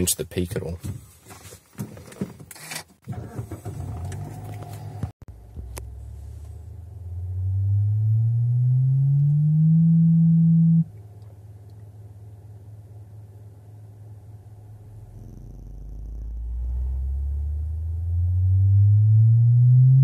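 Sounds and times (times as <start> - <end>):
subwoofer sine sweep tone: 5.3 - 11.0, 12.6 - 20.0.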